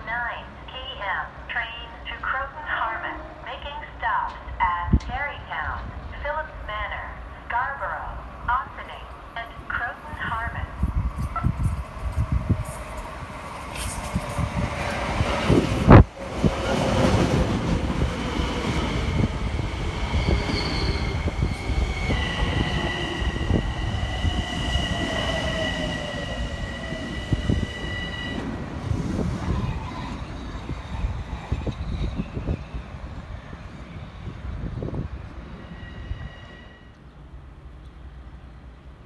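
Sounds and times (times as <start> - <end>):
train wheels rumbling on rails: 10.2 - 38.5.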